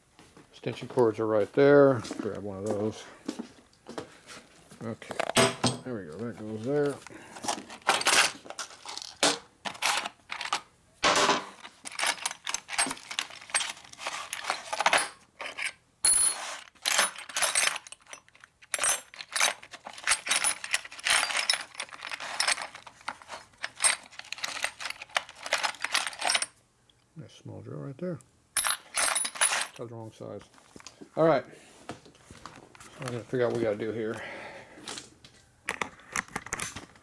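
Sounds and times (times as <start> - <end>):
drill bits clinking in a tray: 11.5 - 26.5, 28.6 - 29.8.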